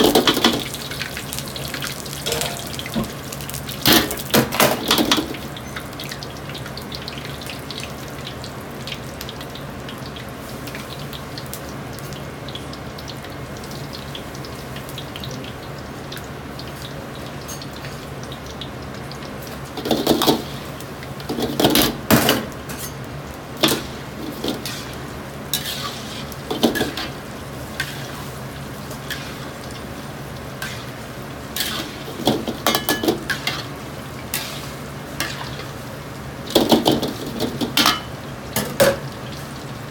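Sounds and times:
oil sizzling in a wok: 0:00.0 - 0:39.9
metal clatter of wok and ladle: 0:02.2 - 0:03.1, 0:23.6 - 0:27.2, 0:31.6 - 0:33.7, 0:36.5 - 0:39.1.

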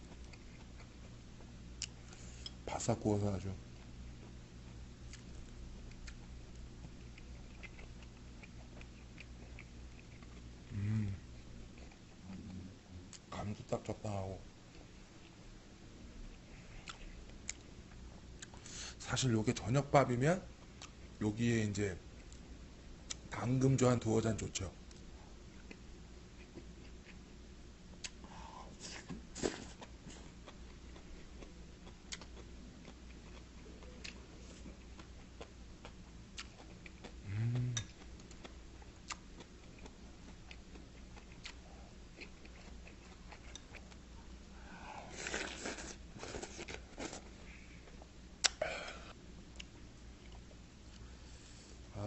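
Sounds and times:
person chewing food: 0:00.0 - 0:02.6, 0:03.7 - 0:13.3, 0:16.3 - 0:18.8, 0:24.9 - 0:27.3, 0:27.9 - 0:51.2
person humming: 0:10.7 - 0:11.3, 0:37.2 - 0:37.9
crunching food: 0:45.1 - 0:48.6.

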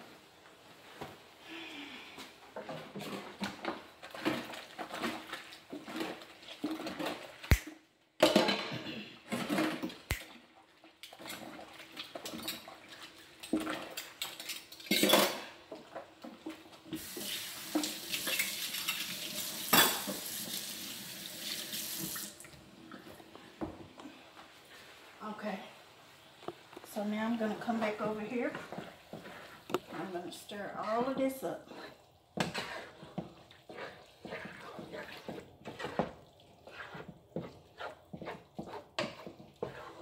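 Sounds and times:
dishes and utensils clattering: 0:08.2 - 0:10.0, 0:11.1 - 0:12.8, 0:13.4 - 0:16.5, 0:17.7 - 0:20.3
faucet running: 0:17.0 - 0:22.6.

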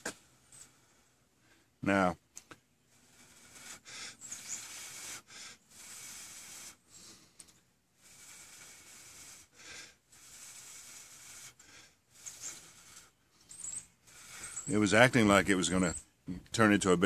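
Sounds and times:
person blowing faint breaths: 0:02.8 - 0:14.7.

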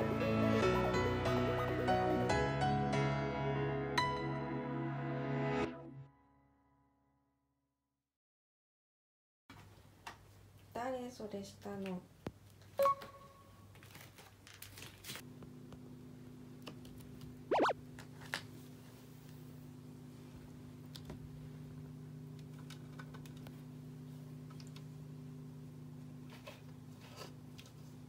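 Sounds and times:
short loud high-pitched sound: 0:17.5 - 0:17.7.

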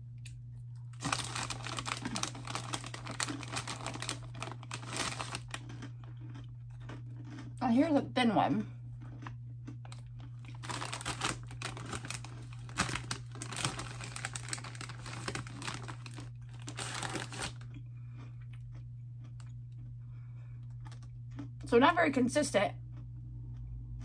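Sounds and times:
snack bag crinkling: 0:00.8 - 0:07.5, 0:09.0 - 0:19.9, 0:20.6 - 0:21.7.

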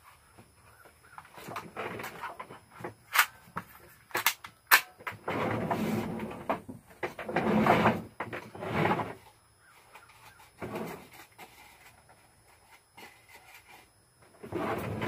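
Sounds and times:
rustling and shuffling: 0:05.1 - 0:15.0.

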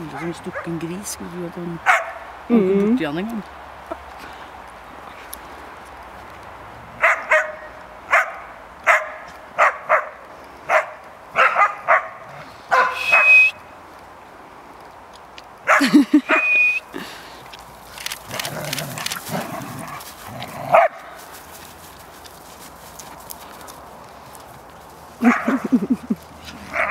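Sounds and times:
dogs barking: 0:01.8 - 0:02.3, 0:07.0 - 0:13.5, 0:15.6 - 0:16.5, 0:18.6 - 0:21.2, 0:25.2 - 0:25.8, 0:26.6 - 0:26.9
dog squealing: 0:12.8 - 0:13.5, 0:15.7 - 0:16.8
dogs growling: 0:18.2 - 0:21.2.

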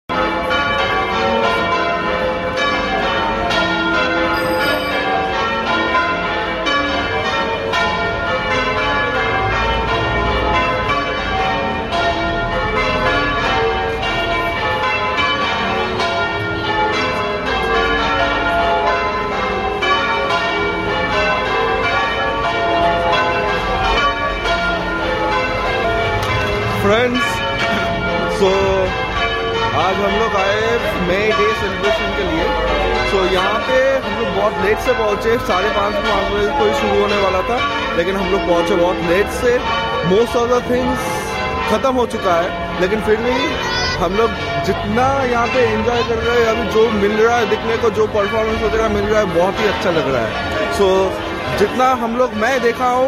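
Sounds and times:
church bells ringing: 0:00.1 - 0:53.0.

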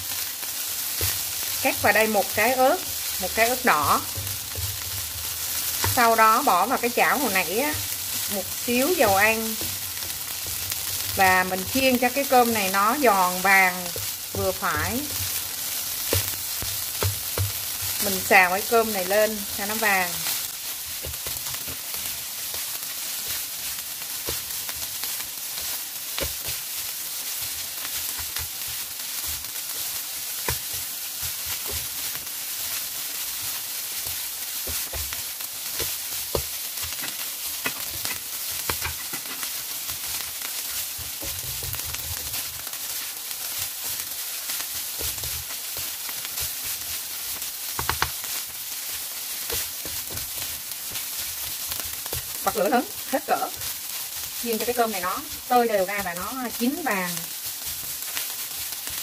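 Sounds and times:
rice sizzling in a pan: 0:00.0 - 0:59.0
spatula scraping a pan: 0:31.4 - 0:43.0.

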